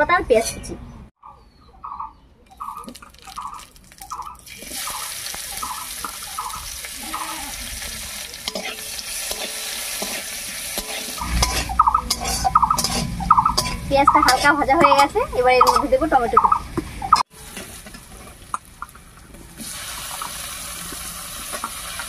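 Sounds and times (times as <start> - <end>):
onion sizzling in oil: 2.9 - 13.7, 16.9 - 22.0
metal spatula stirring: 8.4 - 15.8.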